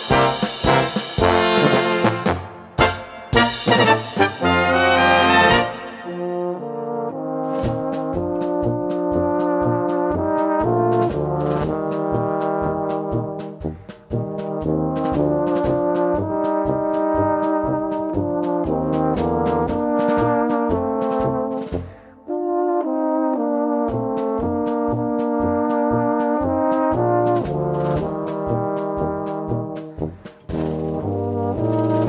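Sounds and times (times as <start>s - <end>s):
steady beat: 0.0s - 6.6s
brass instruments playing: 0.0s - 32.0s.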